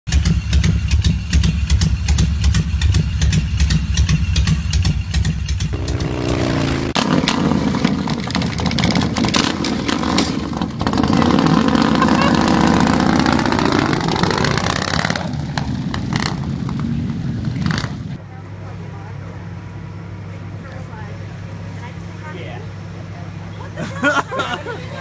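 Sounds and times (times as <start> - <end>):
motorcycle engine revving: 0.1 - 18.2.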